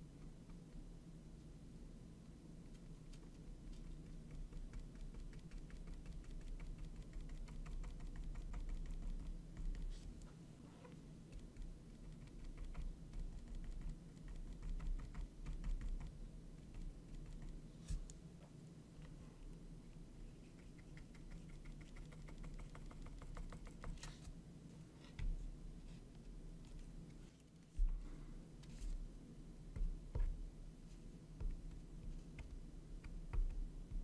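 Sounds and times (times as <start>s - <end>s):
paintbrush dabbing on canvas: 20.3s - 24.2s.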